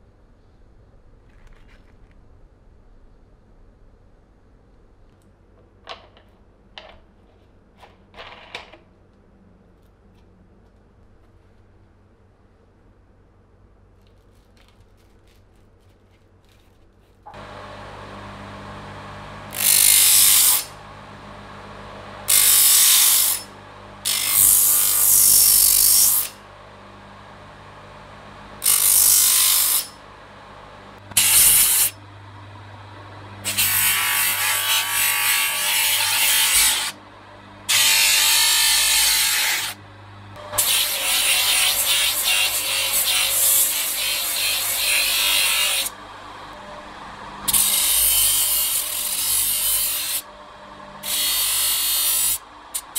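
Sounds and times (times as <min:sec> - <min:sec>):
steel grinding on sanding disc: 0:17.3 - 0:20.8, 0:22.2 - 0:26.4, 0:27.5 - 0:30.0, 0:31.1 - 0:32.0, 0:40.6 - 0:50.3
electric bench motor humming: 0:17.3 - 0:52.9.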